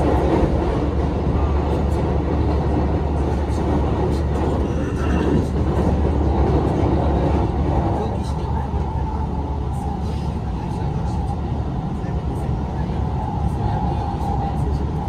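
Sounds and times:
train wheels rumbling on rails: 0.0s - 15.0s.

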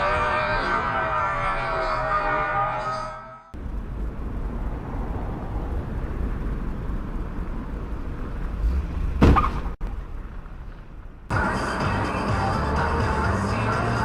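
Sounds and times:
traffic rumble: 3.5s - 14.0s
car collision bang: 8.7s - 9.8s.

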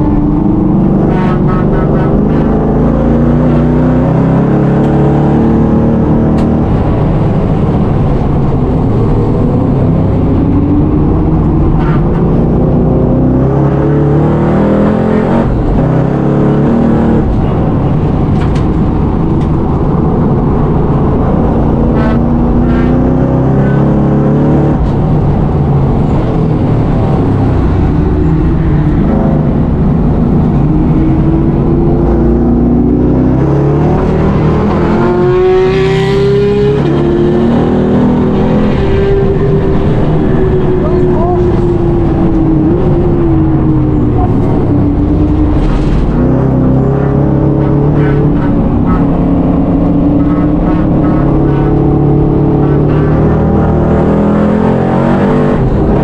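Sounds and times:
race car engine from cabin: 0.0s - 56.0s
rising whine: 0.0s - 56.0s.

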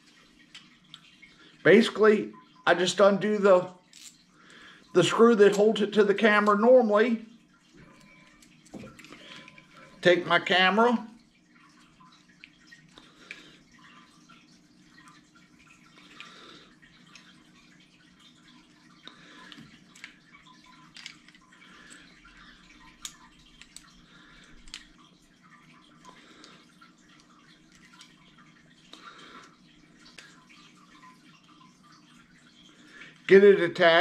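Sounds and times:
low steady room hum: 0.0s - 34.0s.

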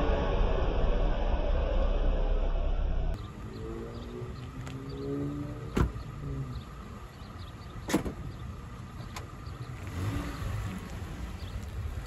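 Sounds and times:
pickup engine pulling away: 3.2s - 12.0s.

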